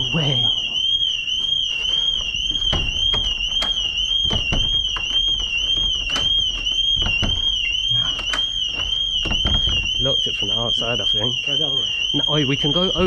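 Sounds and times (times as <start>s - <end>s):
intruder alarm warbling: 0.0s - 13.0s
doors knocking and rattling: 0.6s - 10.7s.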